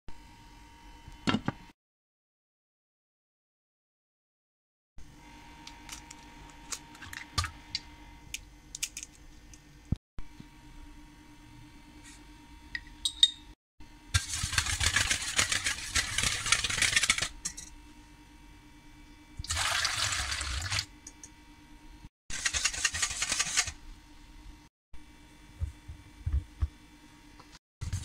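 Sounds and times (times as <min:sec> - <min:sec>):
whisk scraping metal bowl: 0:14.2 - 0:17.7, 0:22.3 - 0:23.8
water pouring into bowl: 0:19.4 - 0:20.9.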